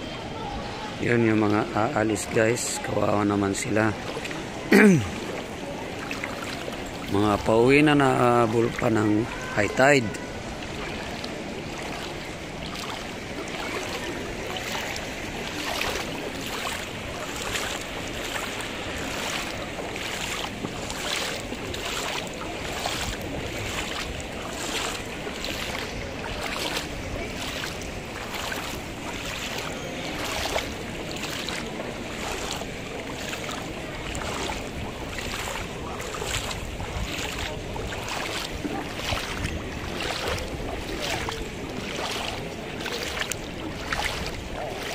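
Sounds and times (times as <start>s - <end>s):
footsteps wading through water: 0.0s - 44.9s.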